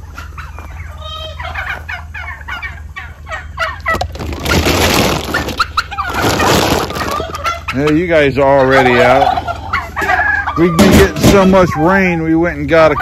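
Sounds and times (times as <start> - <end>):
chicken clucking: 0.0 - 13.0
turkey gobbling: 0.0 - 13.0
loud rustling: 3.8 - 7.4.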